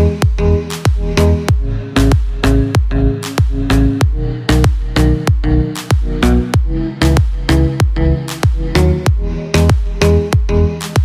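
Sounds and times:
electronic music with kick drum: 0:00.0 - 0:11.0.

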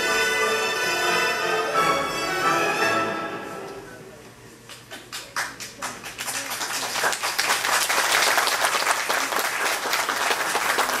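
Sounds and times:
performance music: 0:00.0 - 0:04.5
audience applauding: 0:04.8 - 0:11.0.

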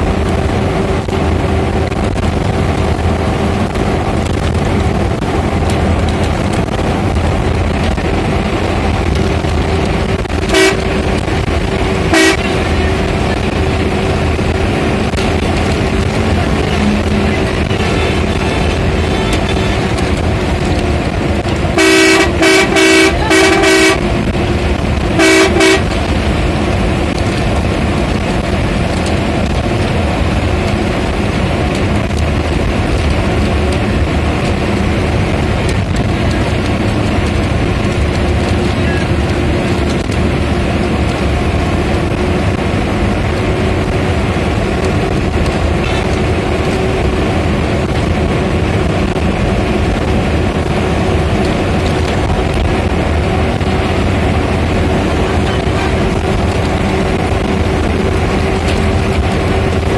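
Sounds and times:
bus engine and road noise: 0:00.0 - 0:59.9
bus horn blasts: 0:09.8 - 0:14.6, 0:15.9 - 0:24.4, 0:25.0 - 0:26.2, 0:55.2 - 0:57.0.

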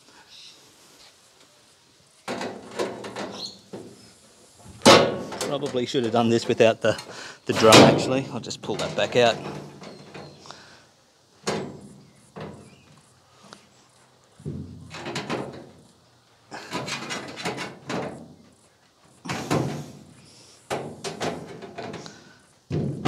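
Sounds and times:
sheet metal knocks and clanks: 0:02.3 - 0:03.9, 0:04.7 - 0:06.6, 0:07.5 - 0:10.3, 0:11.4 - 0:12.7, 0:14.4 - 0:15.8, 0:16.6 - 0:18.4, 0:19.3 - 0:20.0, 0:20.7 - 0:22.0, 0:22.7 - 0:23.0.

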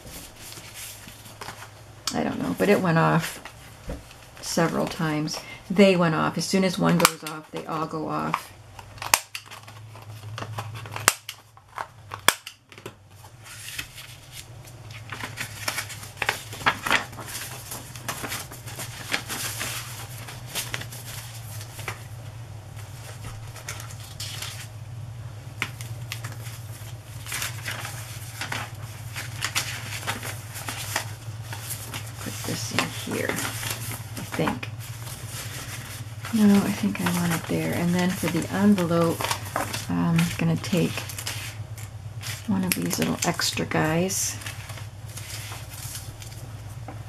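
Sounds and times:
paper rustling: 0:00.0 - 0:05.6, 0:06.6 - 0:24.7, 0:25.6 - 0:46.8
steady low hum: 0:00.0 - 0:47.0.

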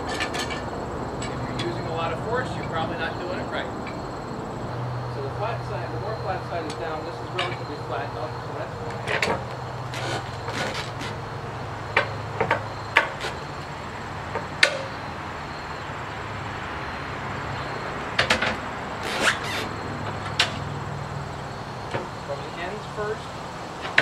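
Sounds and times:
steady low hum: 0:00.0 - 0:23.9
metal hook knocking on log and steel: 0:07.4 - 0:07.7.

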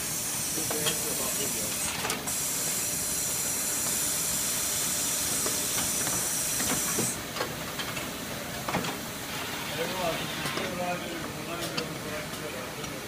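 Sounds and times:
compressed air hissing: 0:00.0 - 0:07.2.

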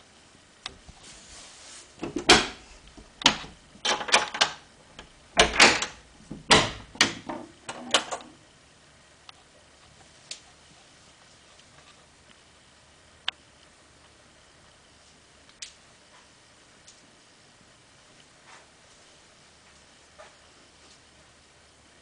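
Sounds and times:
cupboard door knocks and rattles: 0:05.4 - 0:07.5.

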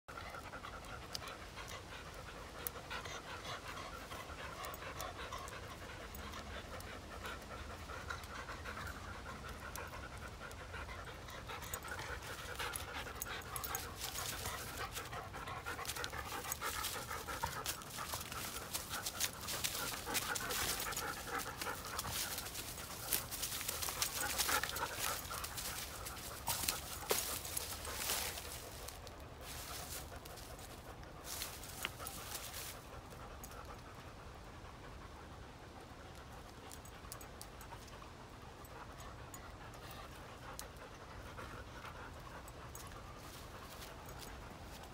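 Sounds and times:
dogs panting: 0:00.1 - 0:44.9
crackling in dry leaves: 0:11.4 - 0:33.0.

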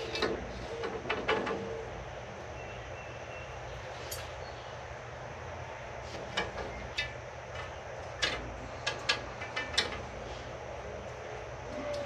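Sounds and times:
metal rods clicking together: 0:06.4 - 0:10.1.

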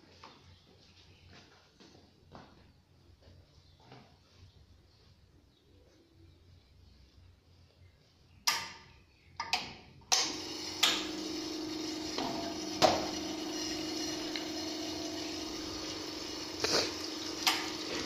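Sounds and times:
espresso machine pump humming: 0:10.2 - 0:18.0
water running into drip tray: 0:12.0 - 0:18.0.

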